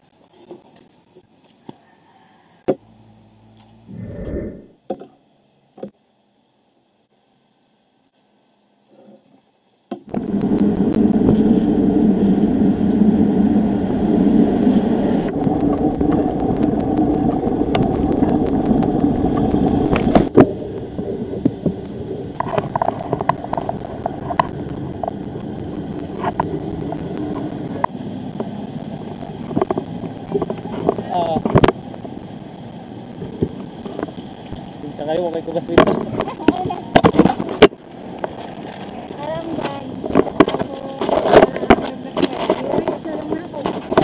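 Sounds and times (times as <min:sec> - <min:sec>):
wind rumbling on microphone: 0:03.8 - 0:04.8, 0:10.1 - 0:44.0
city street traffic: 0:23.4 - 0:44.0.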